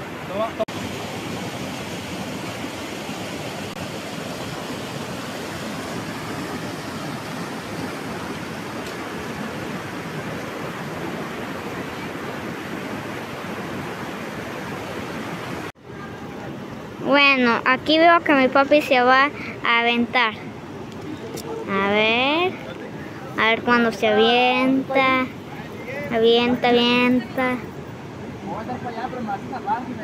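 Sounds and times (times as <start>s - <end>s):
waterfall rushing: 0.0s - 18.1s.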